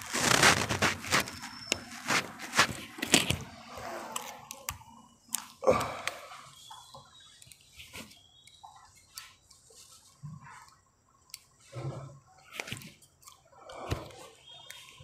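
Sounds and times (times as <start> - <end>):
soft rustling of hands: 0.0 - 3.5.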